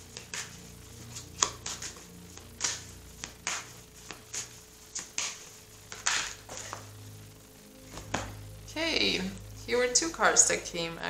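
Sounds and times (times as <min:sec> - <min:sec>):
cards being shuffled: 0:00.0 - 0:06.9, 0:07.9 - 0:08.4.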